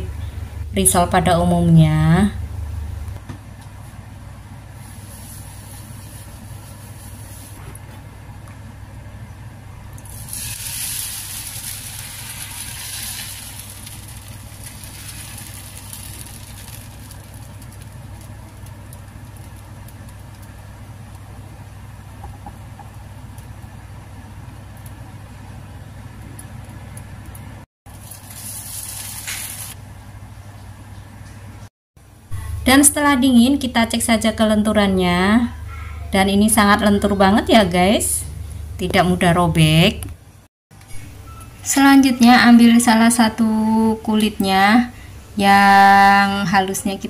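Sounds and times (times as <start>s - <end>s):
steady low hum: 0.0s - 28.5s, 29.7s - 47.0s
batter sizzling in a pan: 4.8s - 7.6s, 10.0s - 20.6s, 27.9s - 29.8s.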